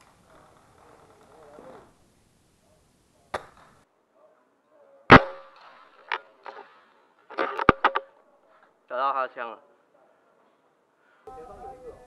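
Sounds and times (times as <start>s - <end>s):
loud rifle crack: 5.1s - 5.8s
airsoft rifle clicks and knocks: 7.3s - 8.1s.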